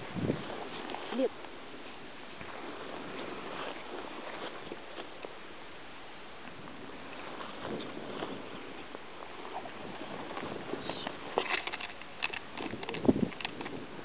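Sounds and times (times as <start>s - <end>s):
wind on microphone: 0.0s - 5.2s, 6.4s - 14.0s
footsteps in long grass: 0.0s - 5.4s, 6.5s - 11.4s.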